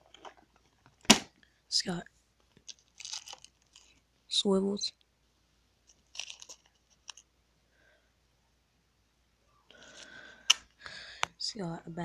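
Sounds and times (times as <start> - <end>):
plastic bag crinkling: 2.6 - 4.0, 5.9 - 7.2.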